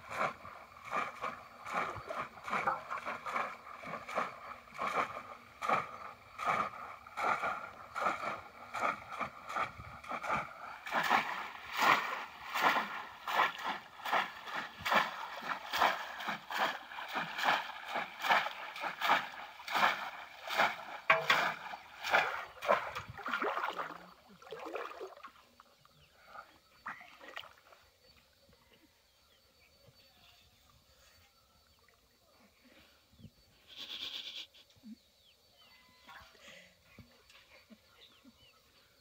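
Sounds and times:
splashes in shallow muddy water: 0:00.0 - 0:28.4.

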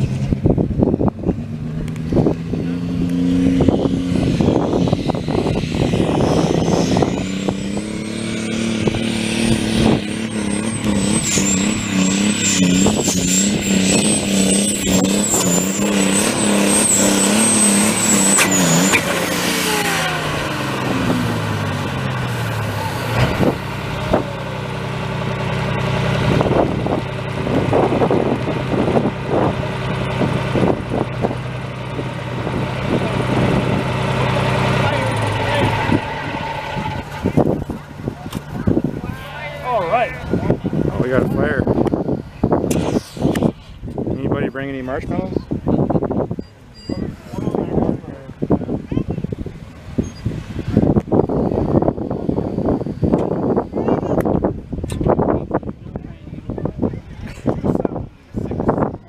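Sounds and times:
diesel tractor engine: 0:00.0 - 0:59.0
high whistling whine: 0:01.9 - 0:45.3, 0:49.5 - 0:54.9.

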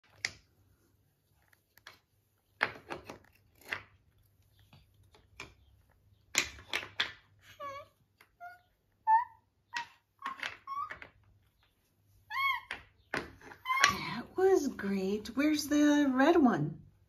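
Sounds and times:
wooden puzzle pieces clacking: 0:00.0 - 0:00.5, 0:01.3 - 0:08.4, 0:09.1 - 0:14.2.

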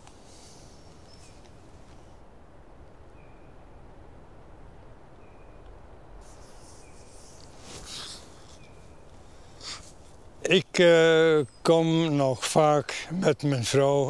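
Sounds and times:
faint hiss and rumble: 0:00.0 - 0:14.0
small bird chirping: 0:00.3 - 0:01.6, 0:03.1 - 0:03.6, 0:05.1 - 0:10.3.

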